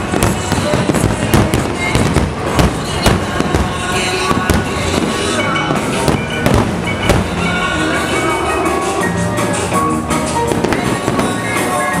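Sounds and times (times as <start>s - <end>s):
firework shells bursting: 0.0s - 7.7s
show music: 0.0s - 12.0s.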